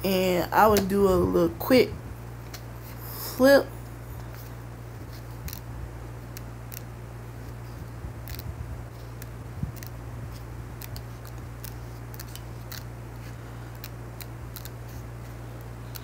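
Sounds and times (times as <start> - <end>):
steady low hum: 0.0 - 16.0
paper pages flicking: 8.2 - 12.9, 13.7 - 15.0.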